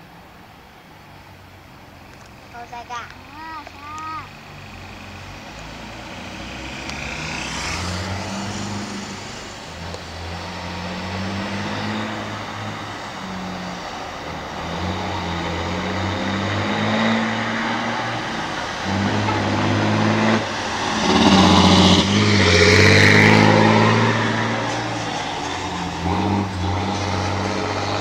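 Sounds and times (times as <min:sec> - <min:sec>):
diesel truck engine: 0:00.0 - 0:28.0.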